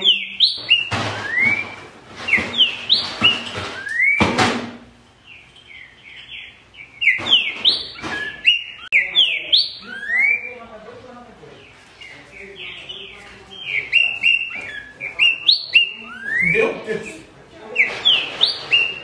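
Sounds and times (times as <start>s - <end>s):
bird singing whistled phrases: 0.0s - 4.2s, 5.7s - 10.6s, 12.9s - 16.8s, 17.8s - 19.0s.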